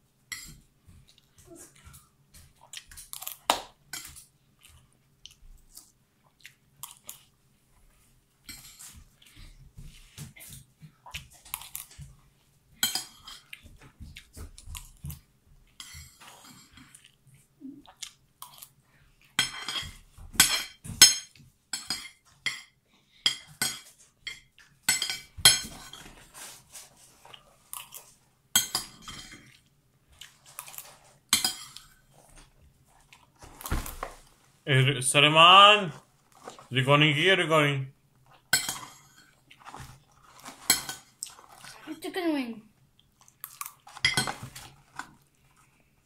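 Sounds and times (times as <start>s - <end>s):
chewing: 1.0s - 7.4s, 8.5s - 12.2s, 13.0s - 19.4s, 27.0s - 28.2s, 29.2s - 33.7s, 38.2s - 41.9s, 42.9s - 46.0s.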